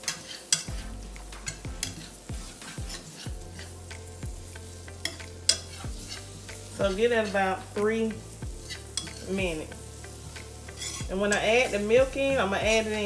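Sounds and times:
whisk scraping a pan: 0.0s - 7.6s, 8.5s - 13.0s
butter sizzling: 0.0s - 13.0s.

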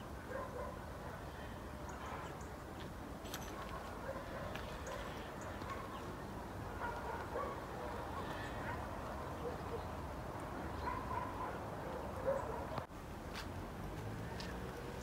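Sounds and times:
distant animal calls: 6.8s - 9.9s.

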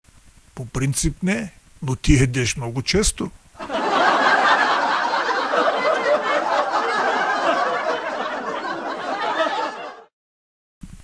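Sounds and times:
audience laughter: 3.6s - 10.1s.

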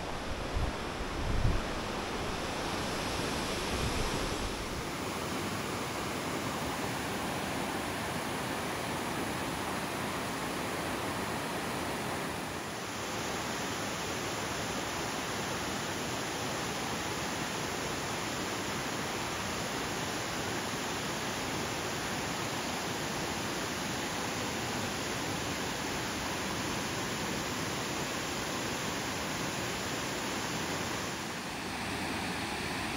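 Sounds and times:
waterfall rushing: 0.0s - 14.5s, 26.1s - 32.9s.

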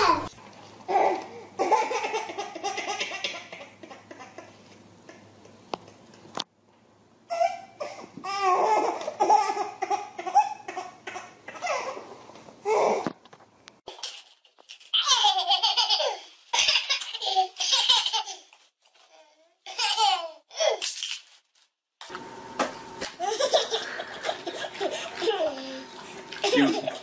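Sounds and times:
baby laughing: 0.9s - 5.2s, 7.3s - 12.0s, 15.0s - 18.6s, 19.7s - 20.8s, 23.2s - 27.0s.

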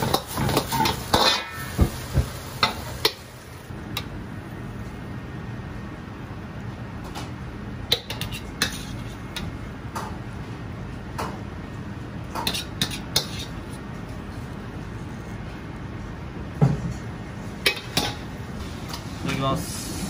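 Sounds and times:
low kitchen hum: 0.0s - 20.0s.

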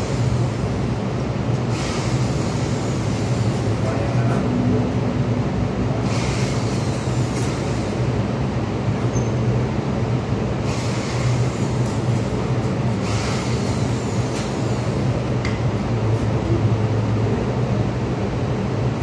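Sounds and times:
low machinery hum: 0.0s - 19.0s.

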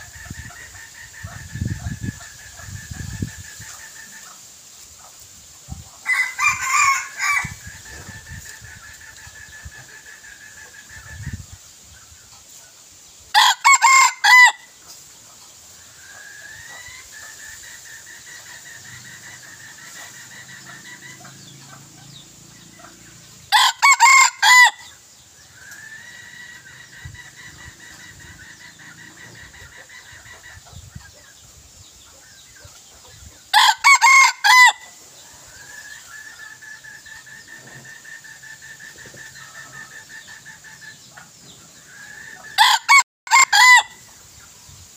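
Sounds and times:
rooster crowing: 6.0s - 7.7s, 13.4s - 14.7s, 23.5s - 24.9s, 33.5s - 34.9s, 42.6s - 44.0s.

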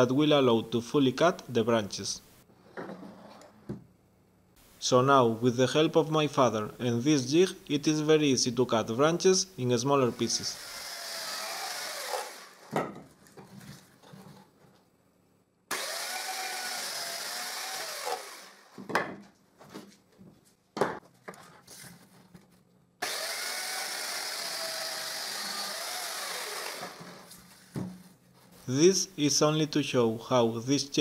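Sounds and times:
electric chainsaw cutting branches: 10.2s - 12.7s, 15.7s - 18.8s, 23.0s - 27.4s.

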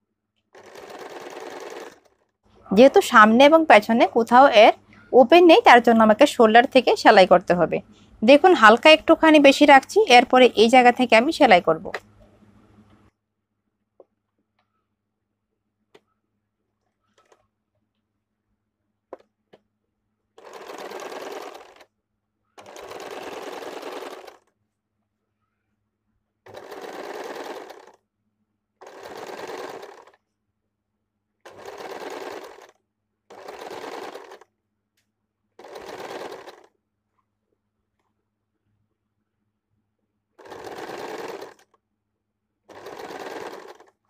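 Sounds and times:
electric sewing machine stitching: 0.6s - 2.2s, 20.4s - 21.9s, 22.6s - 24.5s, 26.5s - 28.0s, 28.8s - 30.2s, 31.4s - 34.5s, 35.6s - 36.7s, 40.4s - 41.8s, 42.7s - 44.0s.

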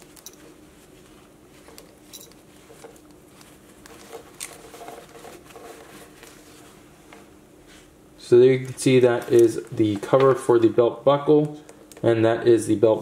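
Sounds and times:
cloth rustling: 0.0s - 8.0s.

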